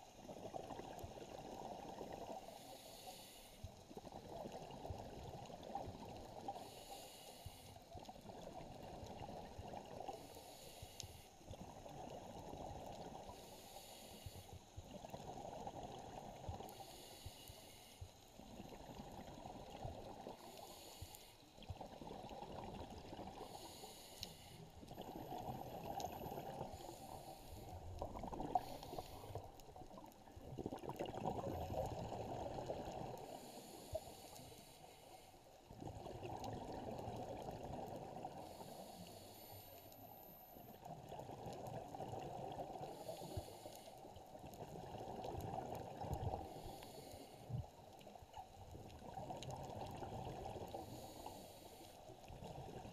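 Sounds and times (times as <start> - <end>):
regulator inhale hiss: 2.4 - 3.9, 6.2 - 8.0, 10.1 - 11.6, 13.2 - 14.8, 16.7 - 18.5, 20.3 - 21.6, 23.2 - 29.6, 33.2 - 35.6, 38.3 - 40.8, 42.8 - 44.2, 46.4 - 47.8, 50.7 - 52.1
exhaled bubbles rushing: 30.2 - 33.2.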